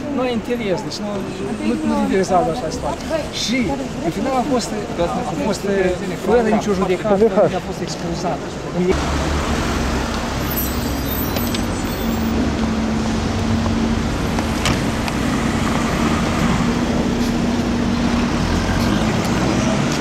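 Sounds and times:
cars driving past: 0:00.0 - 0:20.0.

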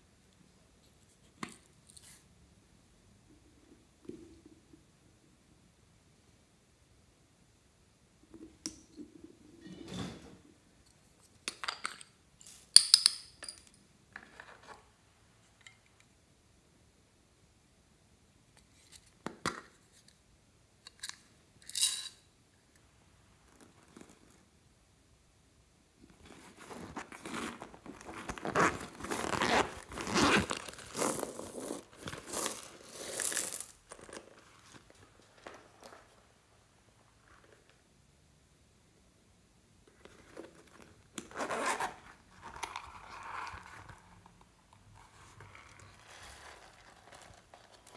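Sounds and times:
fabric rustling: 0:26.1 - 0:36.4
zipper rasping open: 0:26.3 - 0:34.8, 0:40.2 - 0:44.0.

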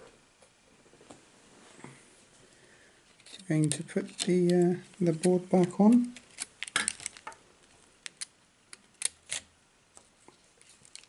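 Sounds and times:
small plastic and metal clicks: 0:03.2 - 0:07.4, 0:08.0 - 0:09.4.

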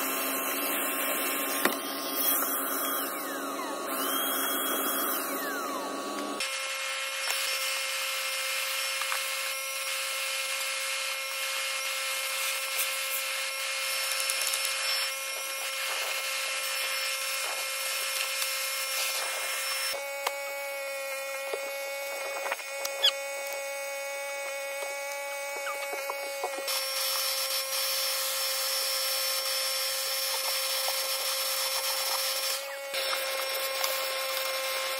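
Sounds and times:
vacuum motor whine: 0:00.0 - 0:34.9.

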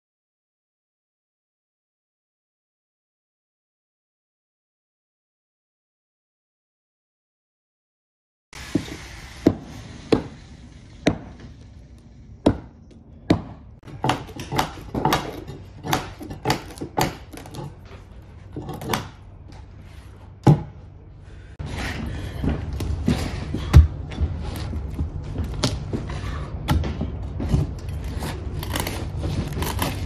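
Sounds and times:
steady background noise: 0:08.6 - 0:30.0.

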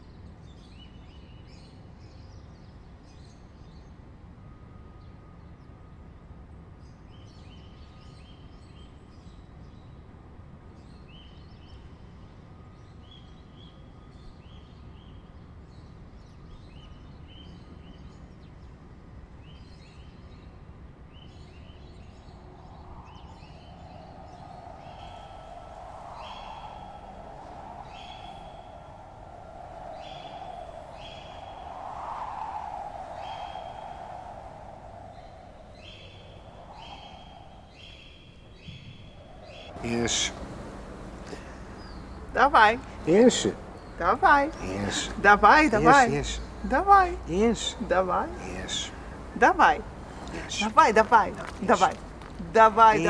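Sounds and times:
small bird chirping: 0:21.2 - 0:40.4, 0:41.2 - 0:53.0
steady low rumble: 0:22.2 - 0:53.0.

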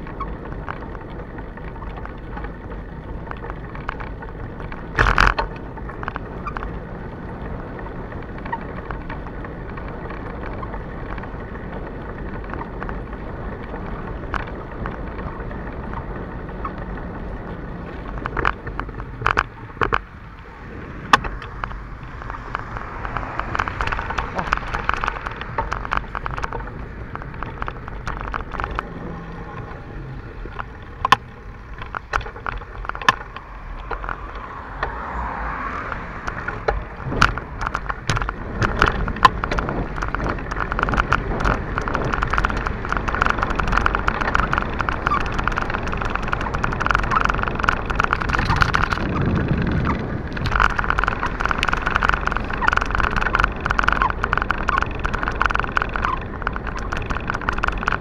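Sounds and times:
bicycle rolling: 0:00.0 - 0:58.0
rattling clicks: 0:00.0 - 0:58.0
wind noise: 0:00.0 - 0:58.0
sharp cracks: 0:21.1 - 0:58.0.

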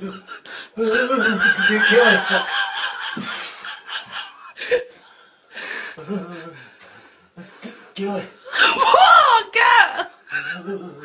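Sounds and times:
people laughing: 0:00.0 - 0:05.0.

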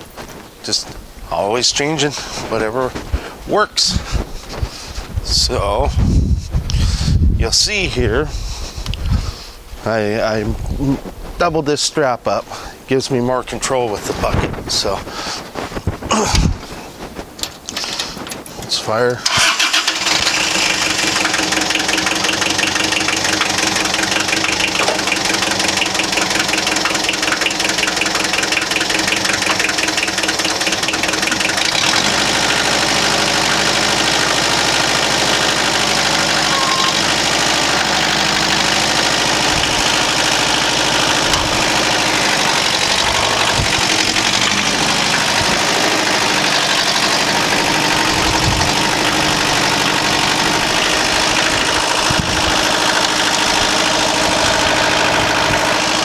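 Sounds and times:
tractor engine idling: 0:00.0 - 0:10.4, 0:16.6 - 0:56.0
engine knocks: 0:19.3 - 0:56.0.

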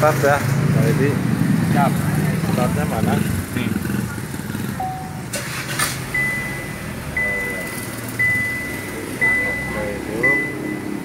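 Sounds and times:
car warning chime dinging: 0:04.8 - 0:11.0.

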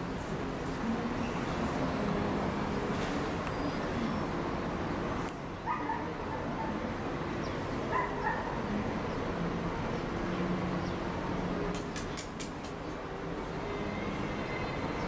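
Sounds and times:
road traffic hum: 0:00.0 - 0:15.0
dog barking: 0:05.7 - 0:06.4, 0:07.9 - 0:08.6.

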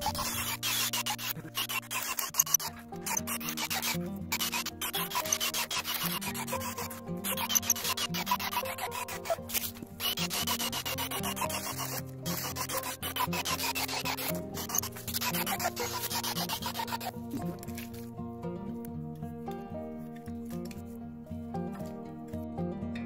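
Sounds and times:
cordless drill boring into log: 0:00.0 - 0:17.1
soft background music: 0:00.0 - 0:23.0.

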